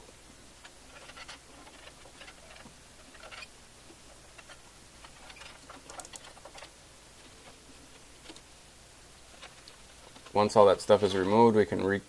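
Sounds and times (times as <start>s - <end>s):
metal clicks and scrapes: 0.6s - 3.5s.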